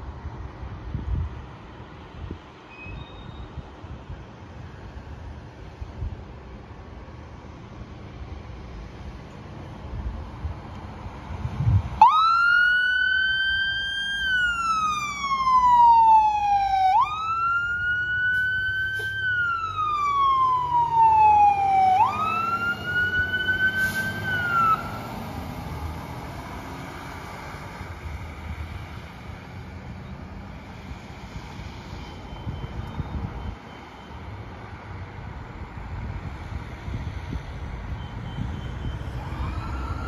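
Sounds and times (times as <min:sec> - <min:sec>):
fire truck siren wailing: 0:11.8 - 0:28.4, 0:37.6 - 0:40.0.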